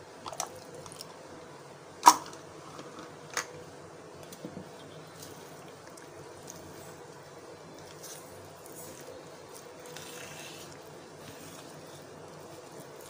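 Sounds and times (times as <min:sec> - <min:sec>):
mixing thick batter: 0:04.6 - 0:13.0.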